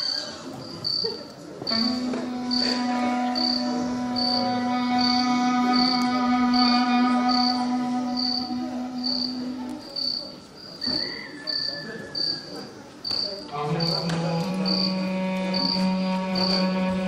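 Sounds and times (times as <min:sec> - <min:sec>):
background music held notes: 0:01.6 - 0:10.3, 0:13.5 - 0:17.0.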